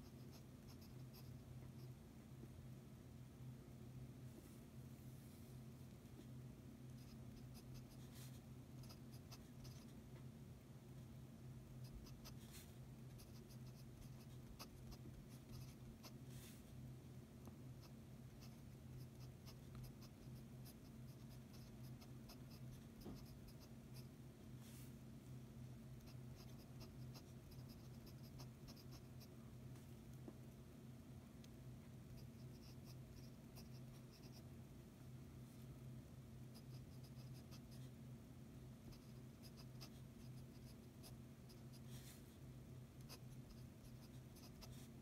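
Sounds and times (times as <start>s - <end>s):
pen nib scratching on paper: 0.0s - 2.0s, 6.9s - 10.0s, 11.8s - 16.2s, 17.8s - 24.1s, 26.0s - 29.3s, 32.0s - 34.5s, 36.5s - 37.9s, 38.9s - 42.0s, 43.0s - 45.0s
steady low hum: 0.0s - 45.0s.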